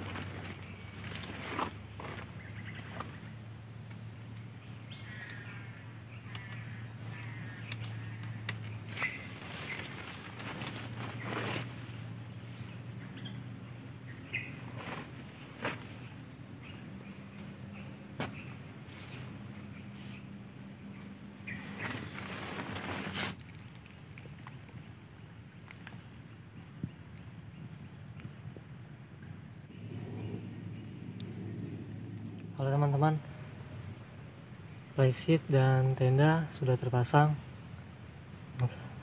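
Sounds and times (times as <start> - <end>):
tent fabric rustling: 0.0 - 3.5, 7.5 - 23.4
insects chorus: 0.0 - 39.0.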